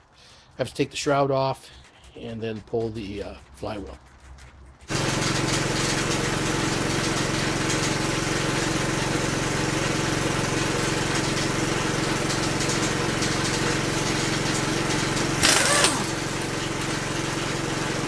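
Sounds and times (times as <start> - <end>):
air compressor running: 4.8 - 18.0.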